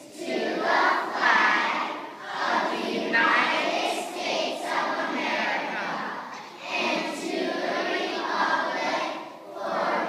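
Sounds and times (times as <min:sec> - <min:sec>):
children singing together: 0:00.0 - 0:10.0.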